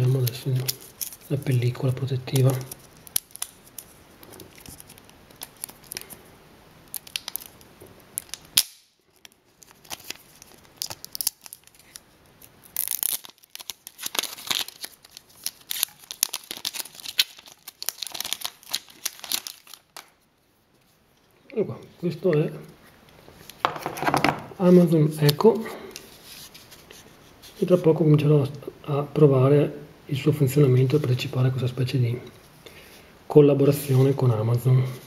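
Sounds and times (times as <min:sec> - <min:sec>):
plastic film crinkling and tearing: 0:00.0 - 0:06.2, 0:06.8 - 0:20.2.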